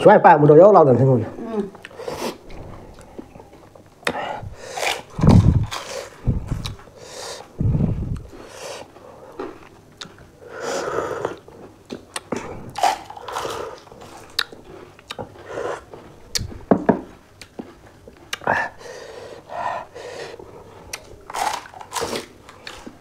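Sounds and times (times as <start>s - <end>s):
chewing and crunching: 1.7s - 7.0s, 7.8s - 10.4s, 11.2s - 16.5s, 20.4s - 23.0s
wet mouth sounds: 4.0s - 6.8s, 7.6s - 8.4s.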